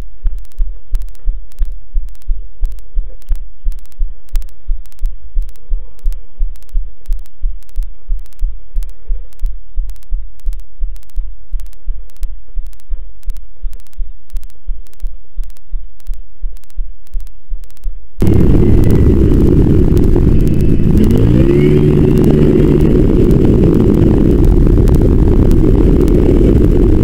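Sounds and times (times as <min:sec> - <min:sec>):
deep bass thumping music: 0:18.2 - 0:27.0.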